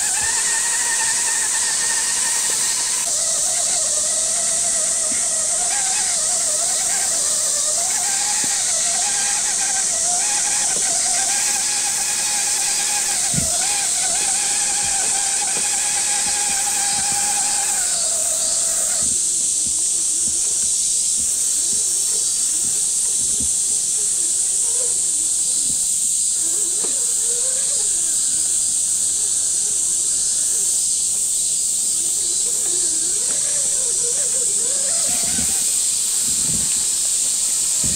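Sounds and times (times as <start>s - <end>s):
electric motor and gearbox whining: 0.0s - 19.3s, 32.2s - 37.9s
high-pitched hiss: 0.0s - 37.9s.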